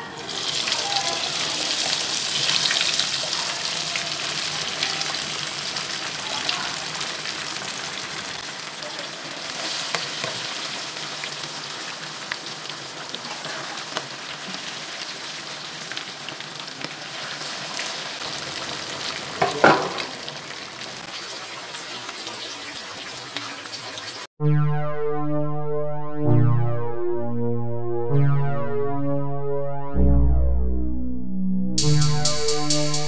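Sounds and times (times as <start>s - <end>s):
fish sizzling in hot oil: 0.2s - 24.3s.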